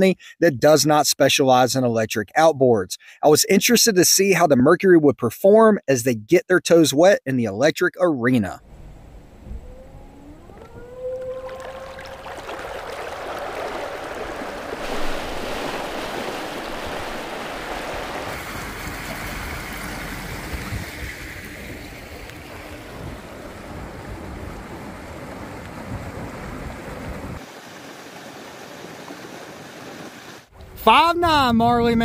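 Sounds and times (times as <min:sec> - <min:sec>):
water rushing along boat hull: 0:09.4 - 0:31.4
wind on microphone: 0:20.3 - 0:27.4.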